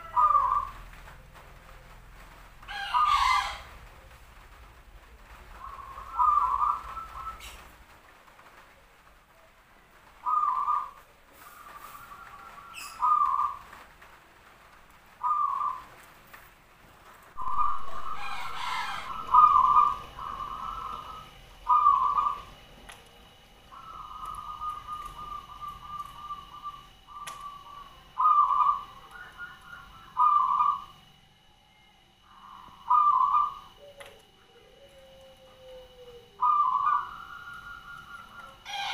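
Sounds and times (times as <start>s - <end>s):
dove cooing: 0.0s - 1.2s, 2.6s - 4.4s, 5.2s - 7.8s, 10.1s - 13.8s, 15.1s - 16.0s, 17.4s - 31.2s, 32.3s - 38.9s.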